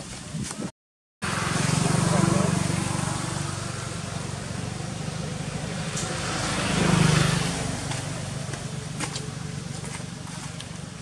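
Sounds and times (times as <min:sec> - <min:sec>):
motor vehicle engine hum: 0:01.2 - 0:11.0
vehicle passing: 0:01.2 - 0:11.0.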